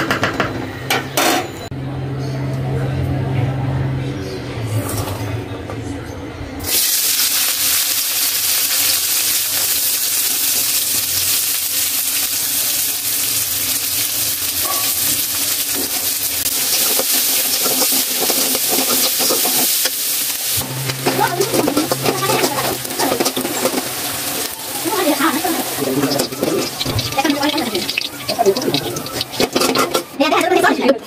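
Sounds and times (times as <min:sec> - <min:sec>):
onions sizzling in hot oil: 0:06.7 - 0:30.4
spatula scraping in pan: 0:14.7 - 0:30.4.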